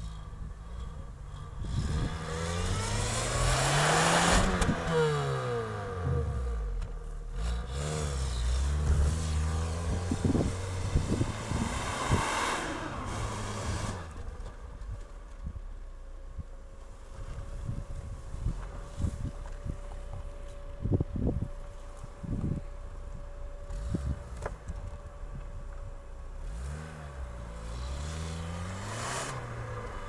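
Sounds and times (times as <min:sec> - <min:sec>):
car engine revving: 0:00.0 - 0:14.6, 0:26.3 - 0:30.0.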